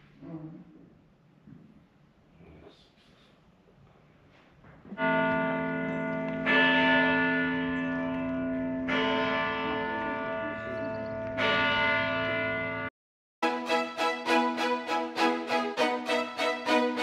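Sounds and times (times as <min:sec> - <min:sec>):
church bells ringing: 0:05.0 - 0:17.0.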